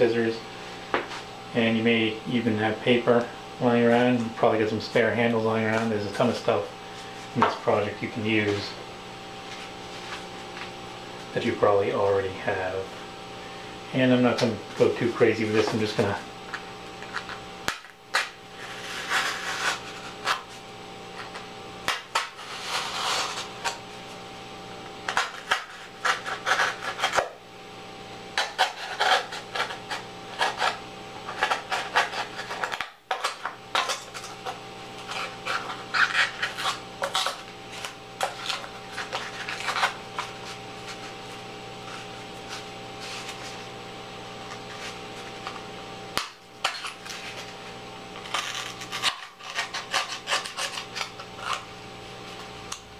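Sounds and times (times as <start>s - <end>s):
knife cutting foam board: 18.1s - 20.5s, 21.2s - 23.8s, 25.1s - 27.4s, 28.4s - 41.2s, 48.2s - 51.6s.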